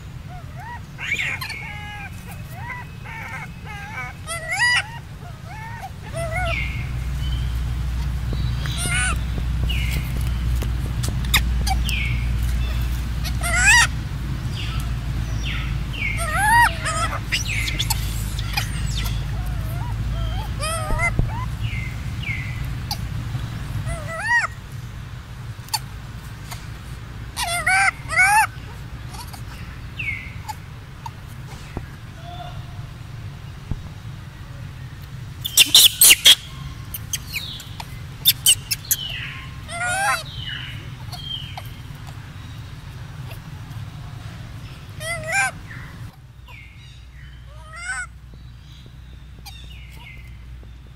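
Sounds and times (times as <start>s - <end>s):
steady low rumble: 0.0s - 50.9s
wavering animal squeals: 0.2s - 7.4s, 8.6s - 9.9s, 11.2s - 14.8s, 15.4s - 22.3s, 23.8s - 24.6s, 27.4s - 32.9s, 35.4s - 42.2s, 45.0s - 46.2s, 47.5s - 48.1s
high falling chirps: 35.2s - 42.2s.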